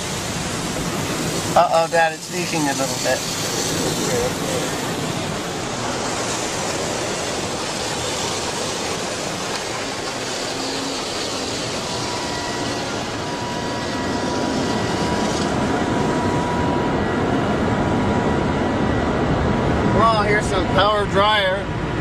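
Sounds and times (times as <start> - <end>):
spraying water: 0.0 - 16.2
car wash machinery: 0.0 - 22.0
thin steady whine: 0.0 - 22.0.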